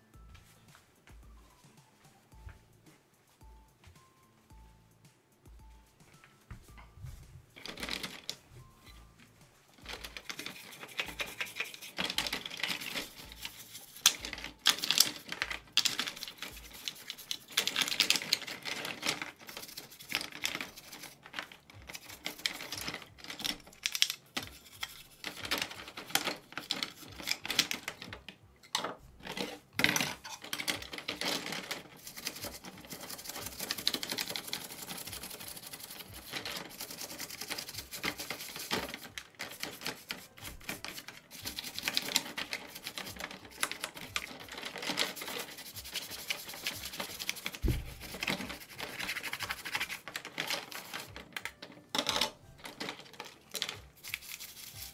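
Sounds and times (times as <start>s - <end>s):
stiff brush scrubbing: 9.8s - 23.3s, 30.6s - 51.1s, 53.6s - 54.9s.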